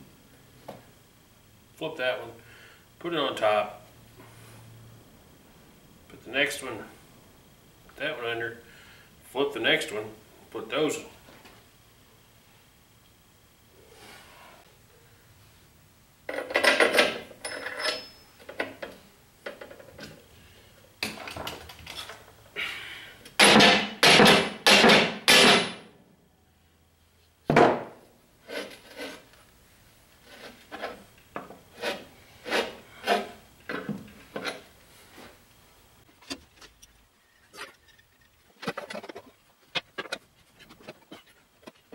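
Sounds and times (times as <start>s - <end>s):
metal scraping on metal and wood: 28.4s - 29.4s, 30.2s - 35.4s, 36.1s - 41.9s.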